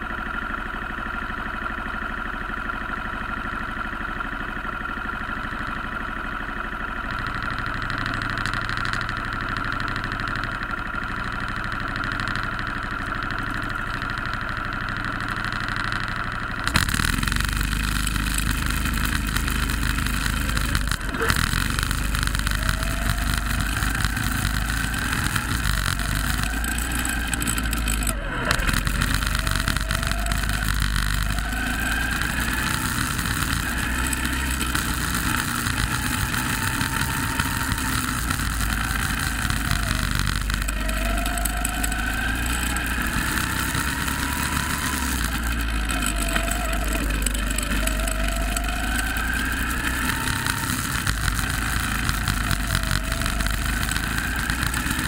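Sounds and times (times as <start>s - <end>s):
go-kart engine accelerating: 0.0s - 55.0s
constant rushing noise: 16.7s - 55.0s.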